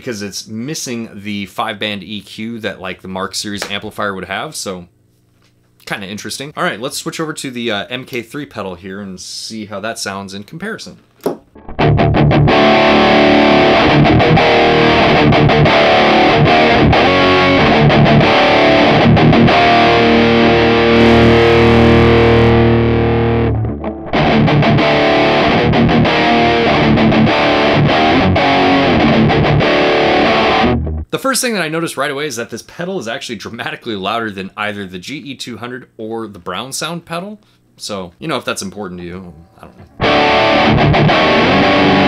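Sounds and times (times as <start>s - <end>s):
distorted electric guitar riffing: 11.6s - 31.1s, 39.3s - 42.0s.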